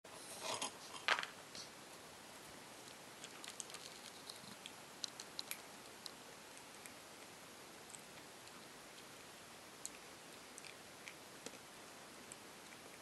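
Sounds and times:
cat crunching kibble: 2.8s - 11.6s.

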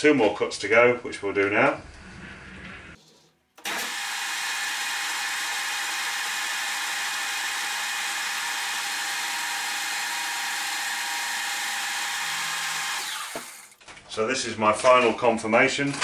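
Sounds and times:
metal lathe whirring: 3.6s - 13.8s.

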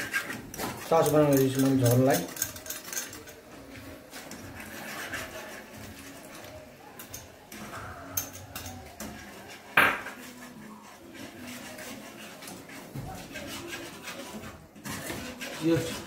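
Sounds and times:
utensils clinking in frying pan: 0.0s - 3.5s.

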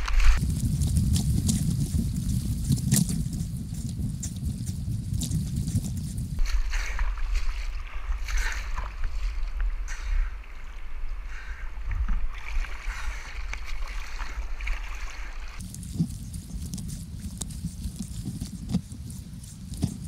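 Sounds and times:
low rumble on microphone: 0.0s - 20.0s
paddle stroke splashes: 6.4s - 15.6s
rushing river water: 6.4s - 15.6s.

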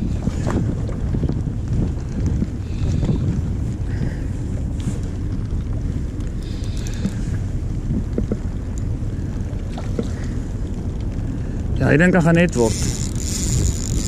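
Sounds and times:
wind buffeting microphone: 0.0s - 14.0s
faint ticks: 5.3s - 11.7s.

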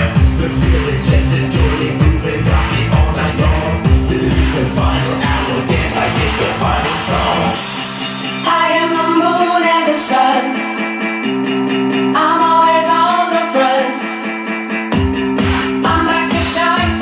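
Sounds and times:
drums and bass: 0.0s - 9.1s, 14.9s - 17.0s
person singing: 0.0s - 11.0s, 12.1s - 14.3s, 15.4s - 17.0s
guitar chords: 0.0s - 17.0s.

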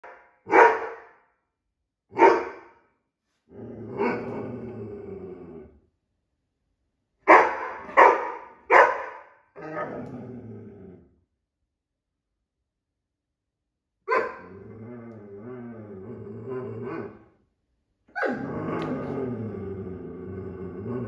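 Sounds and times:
dog barking: 0.0s - 1.2s, 2.1s - 2.7s, 7.2s - 9.9s, 14.1s - 14.5s.

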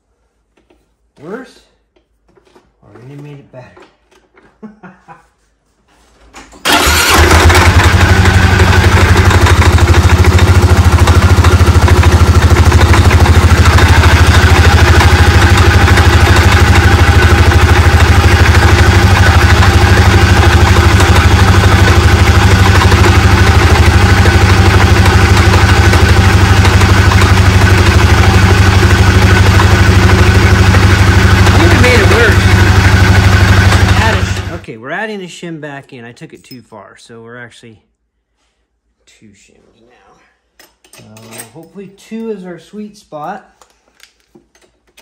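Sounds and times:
clutch and belt turning: 6.6s - 34.6s
atv engine idling: 6.7s - 34.6s.

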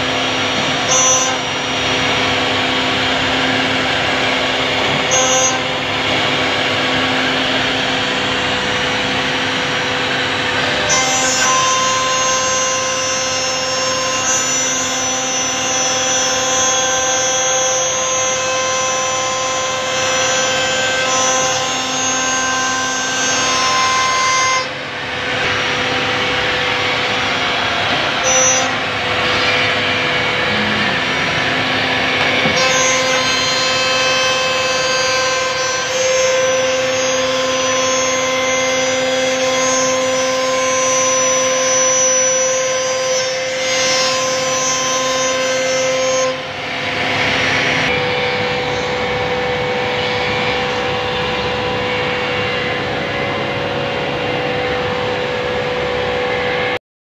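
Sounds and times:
router spindle whining: 24.6s - 42.9s.

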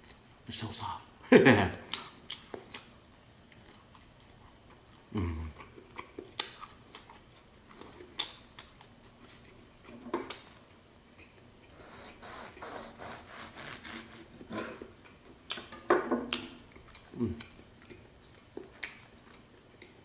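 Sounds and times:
knife sawing through bread: 11.8s - 14.8s.

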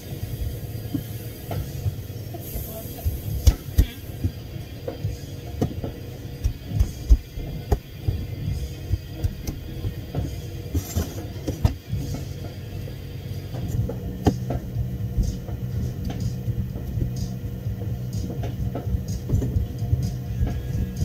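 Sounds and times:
low mechanical hum: 0.0s - 21.0s
scattered clicks and knocks: 3.0s - 12.6s, 13.5s - 17.4s, 18.1s - 21.0s.

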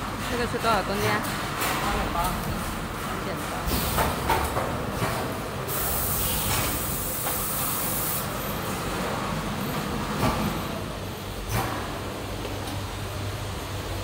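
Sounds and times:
loud hiss: 5.7s - 8.3s.

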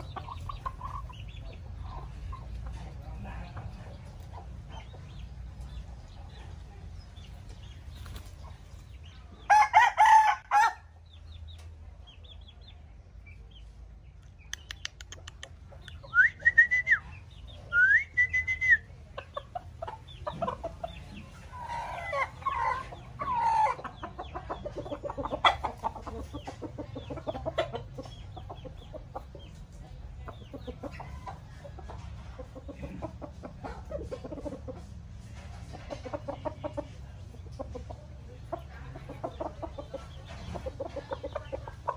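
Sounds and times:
roosters clucking: 0.0s - 41.9s
rooster crowing: 9.5s - 10.9s.

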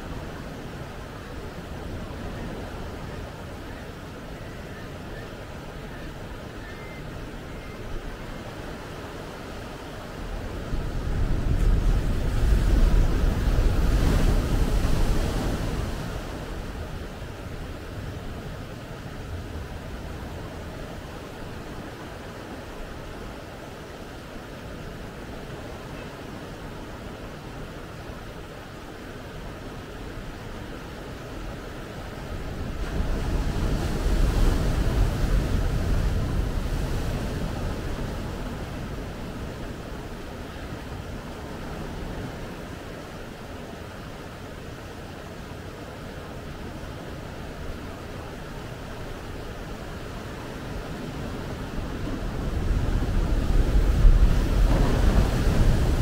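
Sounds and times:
wind rumble on microphone: 0.0s - 56.0s
ocean wave breaking on beach: 50.5s - 56.0s.

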